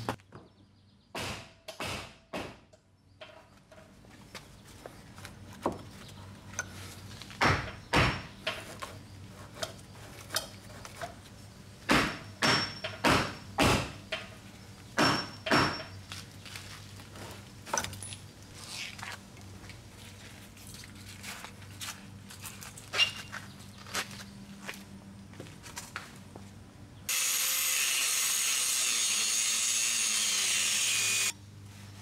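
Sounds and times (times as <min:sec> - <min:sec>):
heavy knocks on wood framing: 0:01.2 - 0:02.6, 0:07.4 - 0:08.3, 0:11.9 - 0:14.0.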